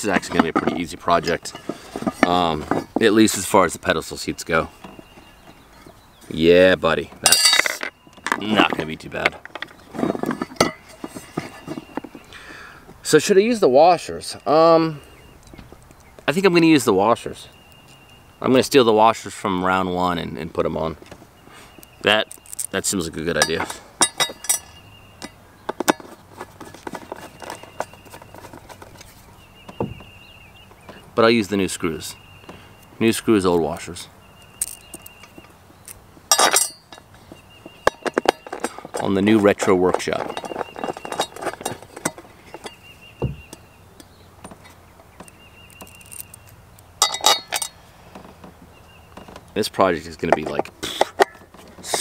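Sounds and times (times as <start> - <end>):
soft thud: 29.7 - 30.1, 43.2 - 43.5
metallic clicks of screws: 34.6 - 36.8, 43.5 - 47.8.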